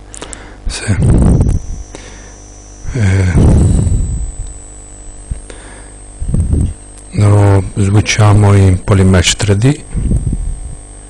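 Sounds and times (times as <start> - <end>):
electrical mains hum: 0.0 - 11.0
loud pitched sound: 0.8 - 9.4.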